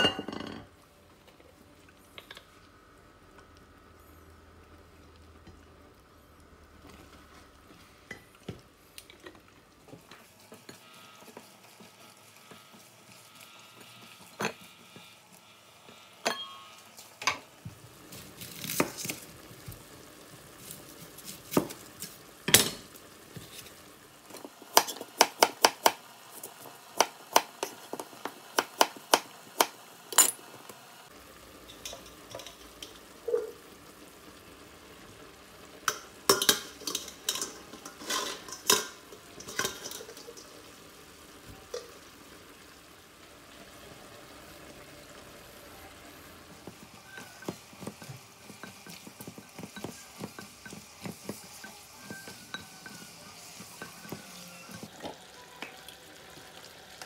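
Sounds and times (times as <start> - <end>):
vegetables sizzling in a pan: 0.0 - 57.0.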